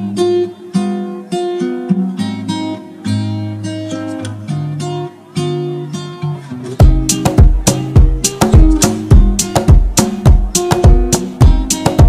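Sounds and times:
acoustic guitar plucked notes: 0:00.0 - 0:12.0.

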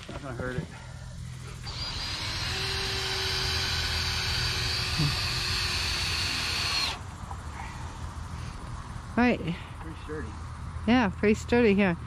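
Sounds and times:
cordless drill driving a screw: 0:01.6 - 0:07.0.

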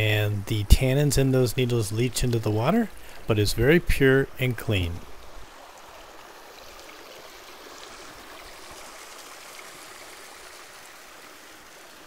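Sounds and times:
creek water running: 0:00.0 - 0:12.0.

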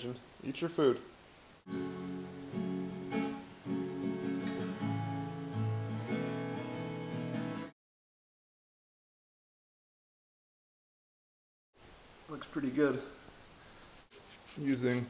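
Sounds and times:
acoustic guitar strumming: 0:01.7 - 0:07.7.

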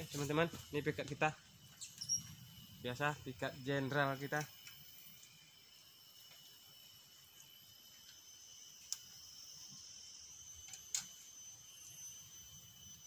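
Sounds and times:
forest insects droning: 0:00.0 - 0:13.0.

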